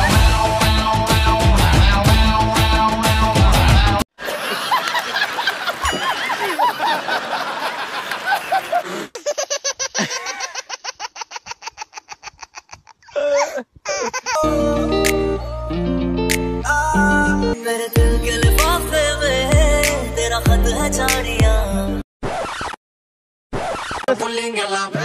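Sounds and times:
people laughing hard: 0:04.2 - 0:14.4.

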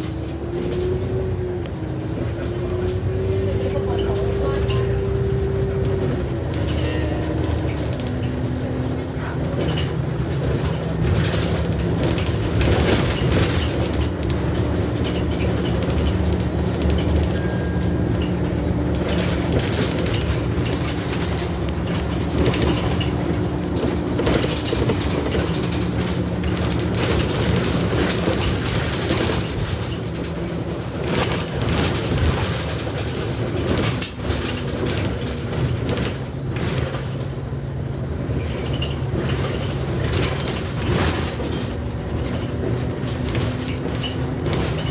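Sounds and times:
bus diesel engine running: 0:00.0 - 0:44.9
bodywork rattling: 0:05.8 - 0:37.4.

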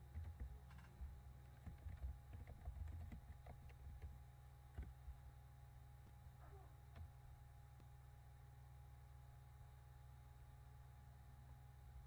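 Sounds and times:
keyboard typing: 0:00.0 - 0:05.0
steady low hum: 0:00.0 - 0:12.0.

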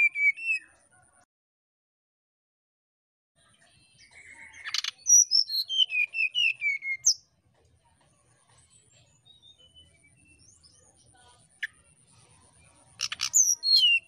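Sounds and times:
bird singing whistled notes: 0:00.0 - 0:00.8, 0:04.0 - 0:07.2, 0:09.1 - 0:11.0, 0:13.0 - 0:14.0.

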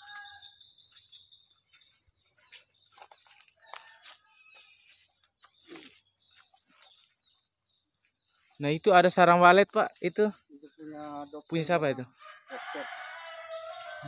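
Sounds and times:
insects droning: 0:00.0 - 0:14.0
faint ticks chirps and rustles: 0:00.1 - 0:08.6.

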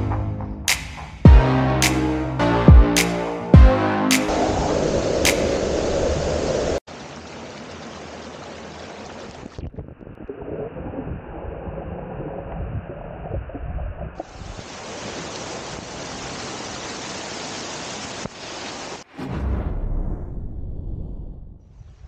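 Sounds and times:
water rushing over small waterfall: 0:06.8 - 0:09.6, 0:14.2 - 0:19.1.

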